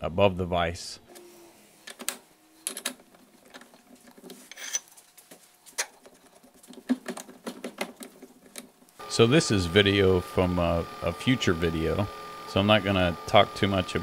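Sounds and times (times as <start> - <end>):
metal parts clicking and tapping: 1.9 - 5.0.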